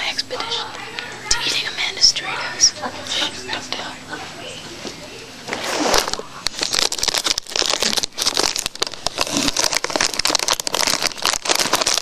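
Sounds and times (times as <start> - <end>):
chip bag crinkling: 5.5 - 12.0.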